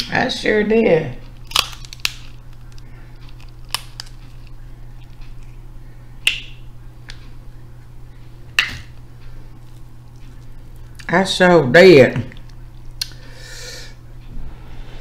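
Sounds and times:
crab shells cracking: 0:01.2 - 0:05.6.

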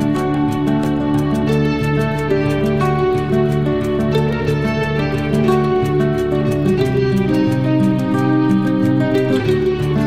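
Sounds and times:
plucked guitar background music: 0:00.0 - 0:10.0.

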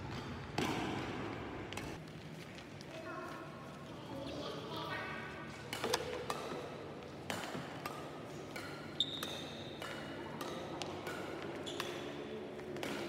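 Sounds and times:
racket hitting shuttlecock: 0:00.1 - 0:02.0, 0:05.7 - 0:13.0
shoes squeaking on court floor: 0:08.3 - 0:10.0, 0:11.4 - 0:12.7.

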